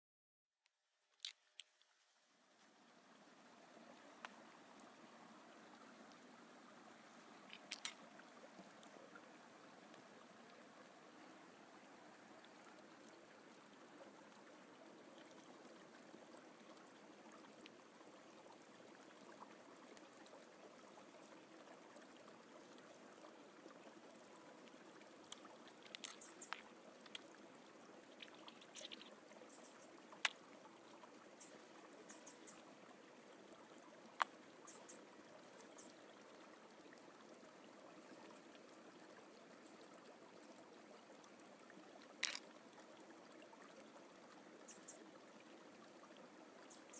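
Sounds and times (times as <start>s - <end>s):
forest stream rushing: 2.2s - 46.9s
light clicks and ticks: 4.2s - 4.6s, 7.4s - 8.9s, 25.2s - 27.4s, 28.0s - 30.4s, 34.2s - 34.9s, 42.0s - 42.5s.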